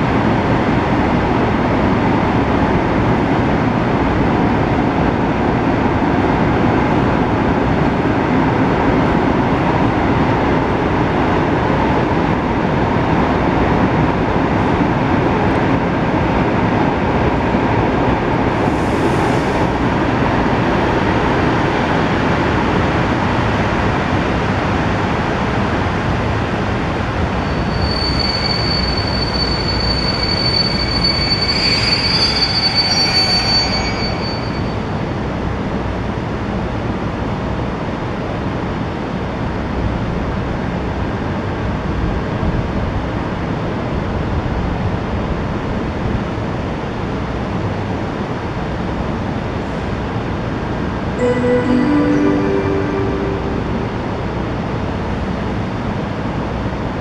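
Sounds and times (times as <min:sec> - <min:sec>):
train coaches rumbling past: 0:00.0 - 0:57.0
train wheels squealing: 0:27.2 - 0:35.4.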